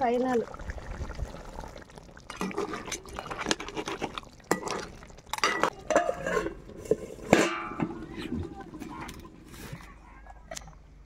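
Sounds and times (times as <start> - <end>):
metal lid clanking on pan: 5.4 - 8.0.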